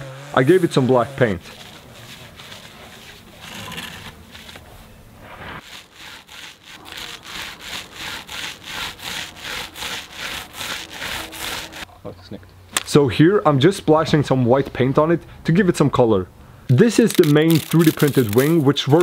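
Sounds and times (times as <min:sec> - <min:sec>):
paint roller rasping on board: 0:00.4 - 0:04.6, 0:05.5 - 0:11.9.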